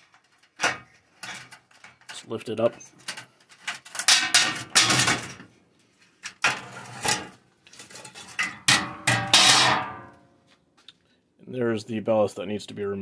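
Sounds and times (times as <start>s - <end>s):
sheet-metal cover clanking and scraping: 0.2s - 2.0s, 3.0s - 5.5s, 6.3s - 10.1s.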